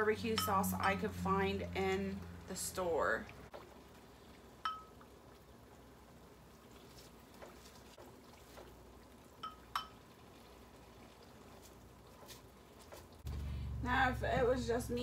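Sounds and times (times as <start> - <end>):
brush clinking glass bowl: 0.2 - 1.2, 4.6 - 5.0, 9.4 - 10.0.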